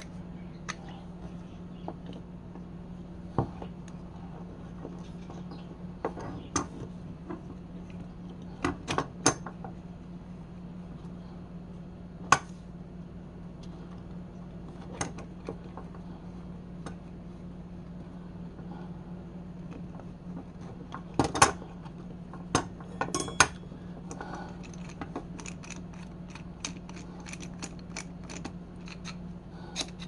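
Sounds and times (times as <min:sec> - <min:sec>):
steady low hum: 0:00.0 - 0:30.0
small objects clicking and knocking: 0:24.6 - 0:29.2.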